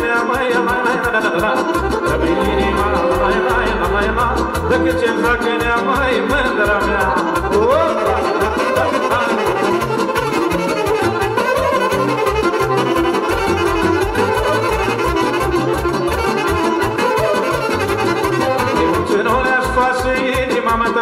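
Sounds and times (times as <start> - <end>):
pulsing bass beat: 0.0 - 21.0
violin: 0.0 - 21.0
brass: 7.0 - 19.9.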